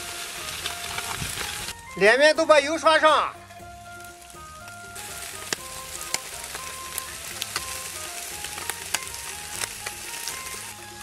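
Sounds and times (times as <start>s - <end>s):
fat popping and crackling: 0.0s - 11.0s
fish sizzling on a grill: 0.0s - 11.0s.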